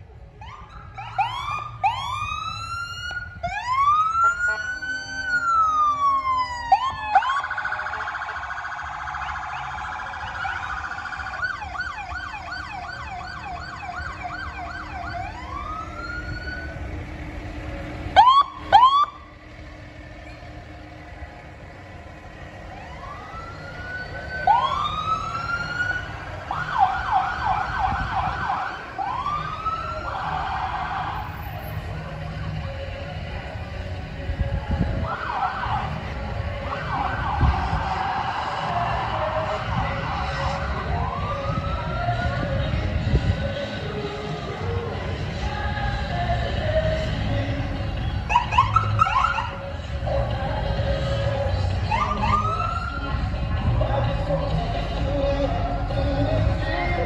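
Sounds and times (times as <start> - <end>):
engine and road rumble: 0.0 - 57.0
electronic emergency sirens: 0.4 - 31.8, 34.8 - 42.9, 48.2 - 49.7, 51.8 - 53.3.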